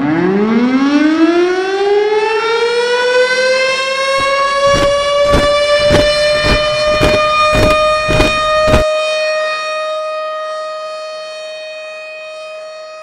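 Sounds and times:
heavy thuds: 4.2s - 8.8s.

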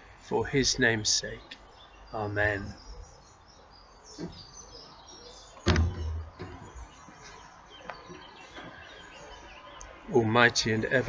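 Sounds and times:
background traffic noise: 0.0s - 11.0s
faint birds chirping: 0.0s - 11.0s
loud thump: 5.7s - 6.7s.

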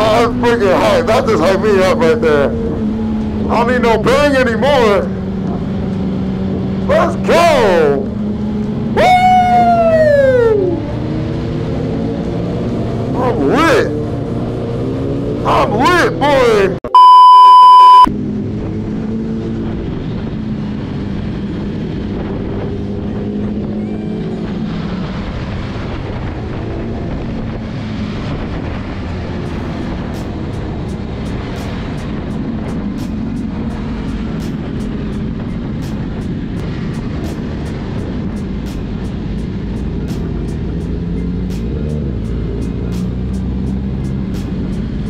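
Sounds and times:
motorcycle running: 0.0s - 16.8s, 18.0s - 45.0s
wind rush: 18.1s - 45.0s
music with ticking beat: 30.2s - 45.0s.

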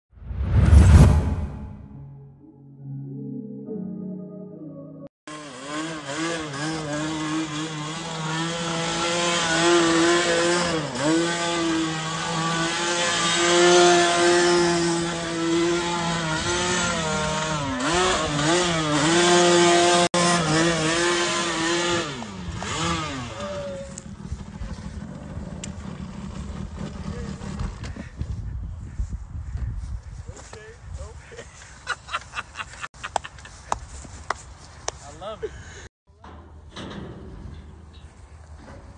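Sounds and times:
quad bike engine revving: 5.3s - 27.8s.

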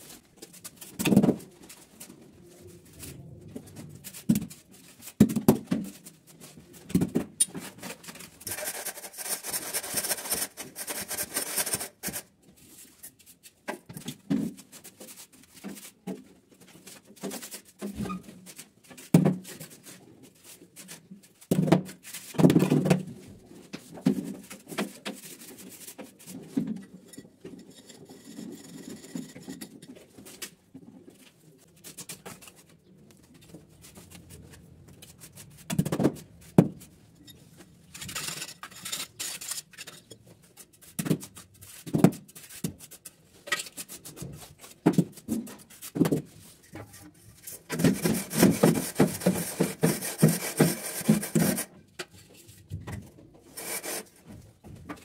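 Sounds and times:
trowel scraping and tapping mortar: 8.4s - 12.3s, 38.0s - 41.4s, 47.7s - 52.1s.

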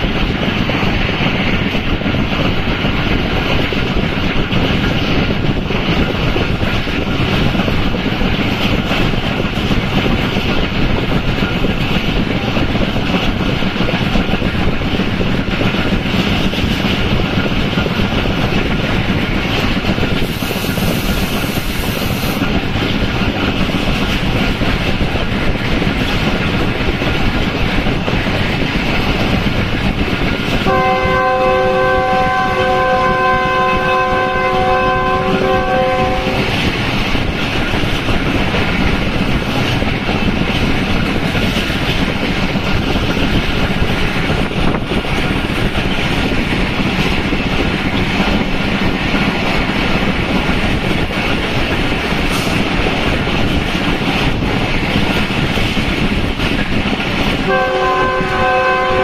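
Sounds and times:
rushing air: 0.0s - 30.8s, 31.4s - 57.6s
train wheels on track: 0.0s - 59.0s
train horn chord: 30.7s - 36.5s, 57.5s - 59.0s.

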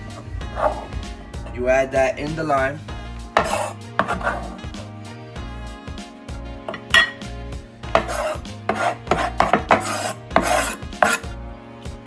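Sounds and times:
scraping on wooden cutting board: 0.2s - 1.0s, 3.3s - 4.7s, 7.9s - 11.4s.

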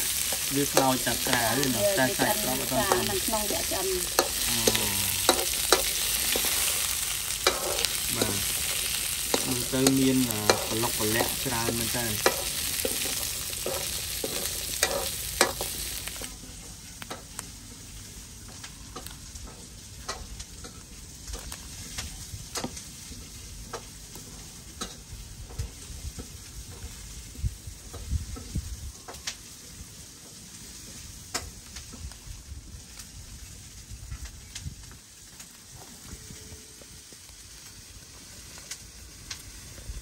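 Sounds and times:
vegetables sizzling in a wok: 0.0s - 40.0s
metal spatula scraping: 0.1s - 16.3s.

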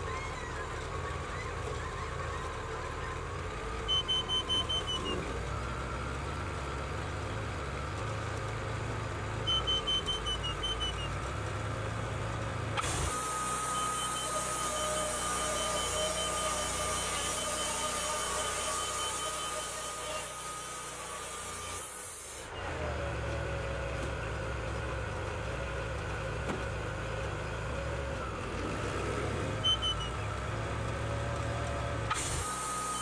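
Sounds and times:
sawmill engine running: 0.0s - 33.0s
band saw blade whine: 12.8s - 23.0s, 32.0s - 33.0s.

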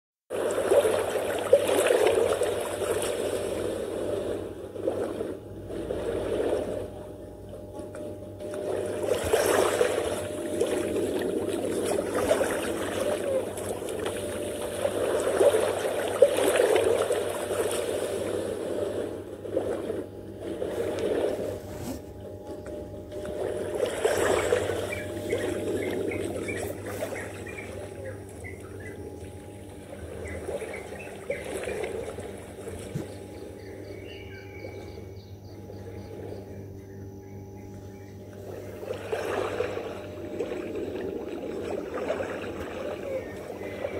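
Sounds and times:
small waves washing on shore: 0.3s - 33.7s, 38.5s - 43.9s
faint bird chirps: 24.3s - 38.8s, 42.8s - 43.9s.

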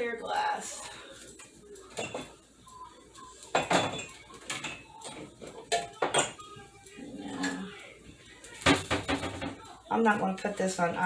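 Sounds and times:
glassware and dishes clinking: 1.2s - 7.8s, 8.6s - 9.8s.

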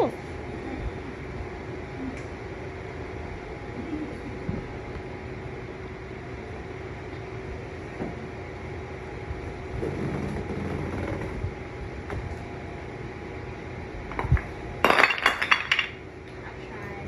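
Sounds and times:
wooden blocks clattering on floor: 14.2s - 16.0s.

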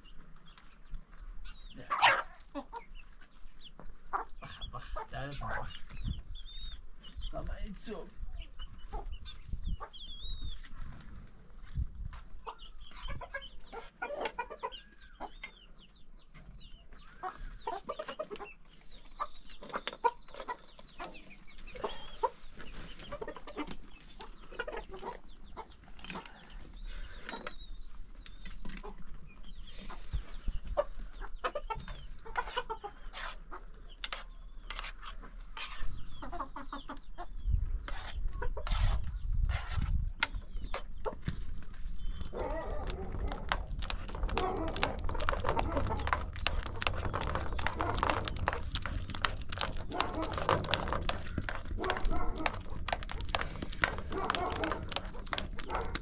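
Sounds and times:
chickens clucking: 0.0s - 11.3s, 12.0s - 56.0s
sharp clicks and knocks: 42.2s - 56.0s.

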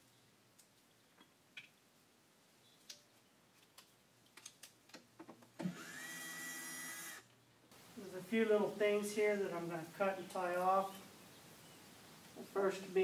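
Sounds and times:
power tool motor whining: 5.6s - 7.3s.

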